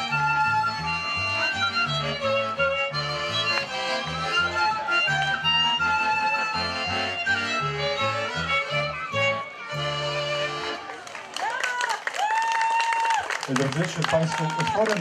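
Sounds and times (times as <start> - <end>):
bass notes: 0.0 - 10.8
accordion: 0.0 - 11.3
fiddle: 0.0 - 11.3.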